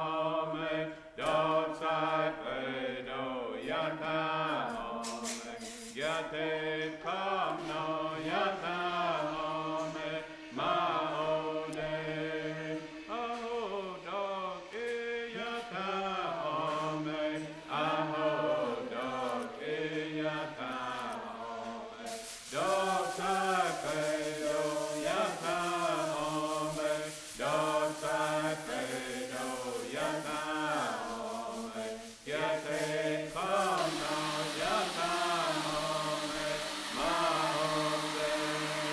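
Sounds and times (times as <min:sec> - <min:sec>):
voices chanting a song: 0:00.0 - 0:38.9.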